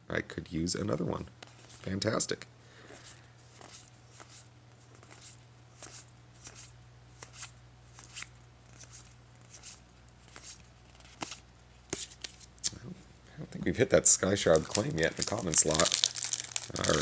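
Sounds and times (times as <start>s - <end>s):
cards sliding and snapping: 2.9s - 12.8s.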